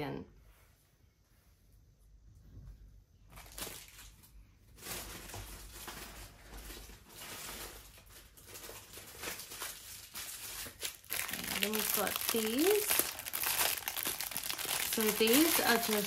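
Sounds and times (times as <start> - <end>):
plastic packaging crinkling: 3.3 - 16.0.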